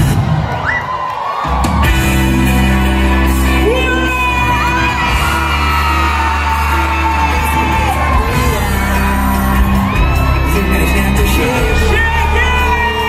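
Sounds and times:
amplified pop music with singing: 0.0s - 13.0s
audience whooping and cheering: 0.0s - 13.0s.

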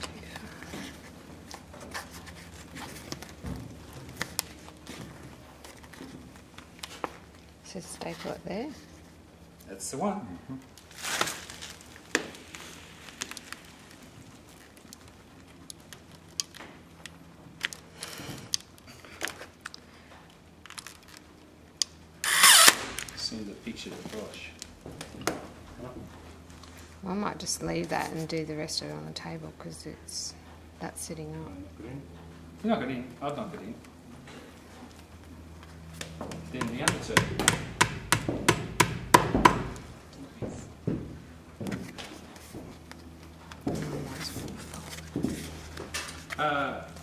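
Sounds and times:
canvas rustling: 10.7s - 16.4s.

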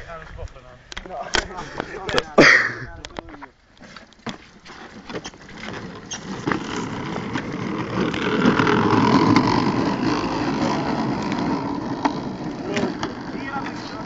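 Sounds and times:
plastic wheels rolling on concrete: 2.9s - 14.0s.

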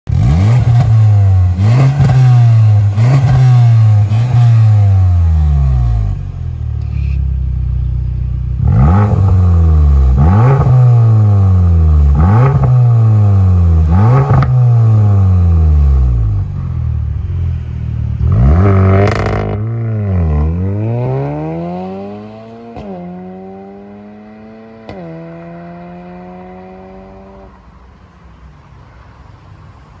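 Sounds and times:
car engine revving: 0.1s - 7.2s, 8.4s - 27.5s
car accelerating away: 18.2s - 27.6s.

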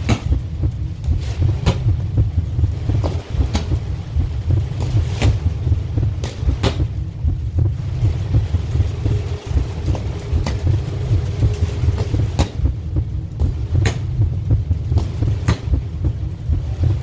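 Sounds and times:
wind buffeting microphone: 0.0s - 17.0s
sharp knocks: 6.2s - 6.9s, 14.9s - 15.8s.

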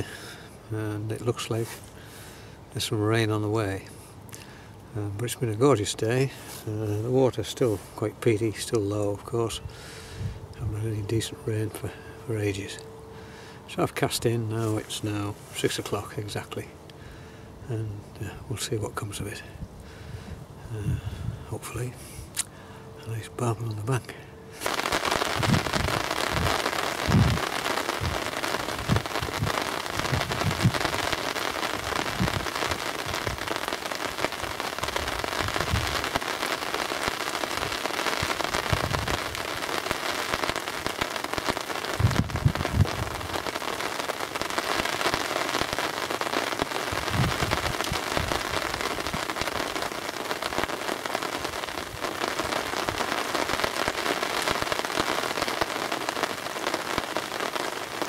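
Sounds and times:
heavy rain on umbrella and river: 24.6s - 58.0s.

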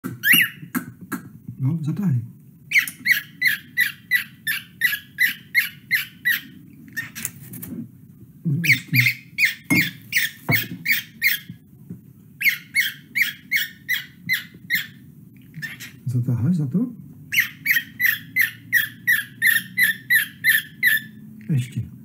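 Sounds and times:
low steady hum: 0.0s - 22.0s
cockatiel whistled chirps: 0.2s - 0.6s.

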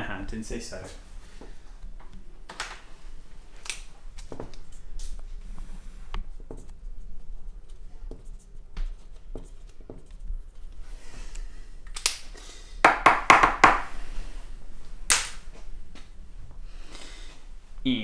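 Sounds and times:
marker pen squeaking on whiteboard: 6.3s - 10.8s.

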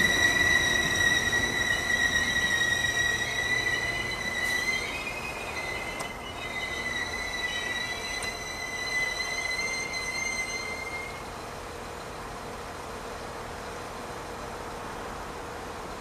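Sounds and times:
train high-pitched squeal: 0.0s - 11.5s
train low hum: 0.0s - 16.0s.

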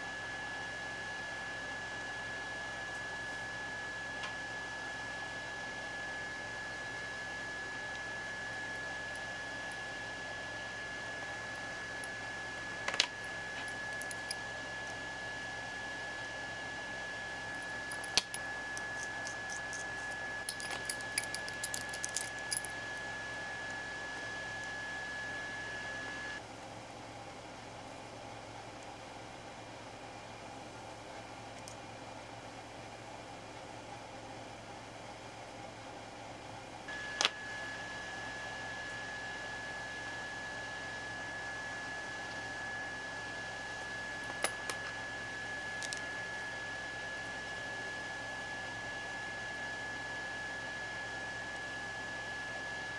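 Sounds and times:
high-pitched whine: 5.6s - 26.4s.

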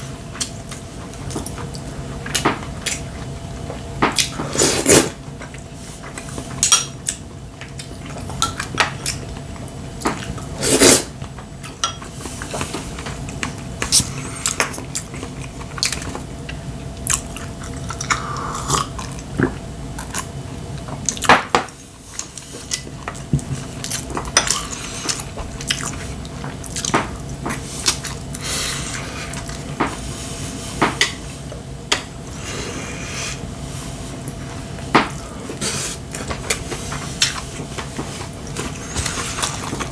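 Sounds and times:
chewing: 12.4s - 20.3s, 22.1s - 29.7s.

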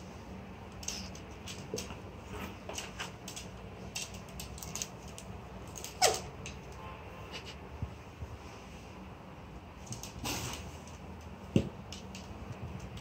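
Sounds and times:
pet clicks and scuffs on wooden floor: 0.7s - 6.8s.

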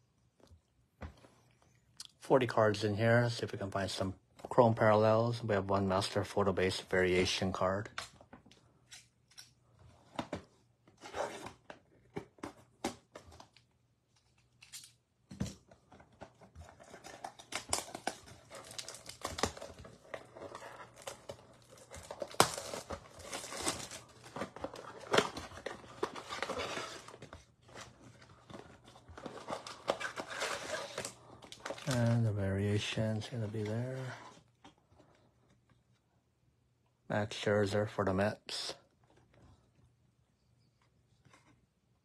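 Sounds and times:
wrappers tearing and crinkling: 16.9s - 27.2s, 29.2s - 32.2s.

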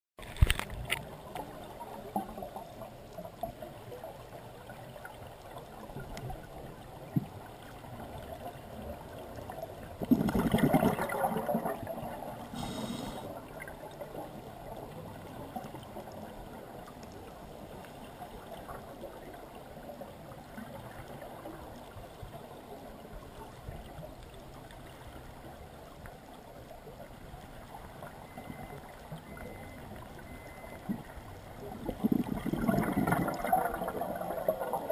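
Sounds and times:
faint clicks: 5.4s - 6.4s
loud bubbling: 10.0s - 11.6s, 31.9s - 34.9s
underwater watery hiss: 12.4s - 13.5s.

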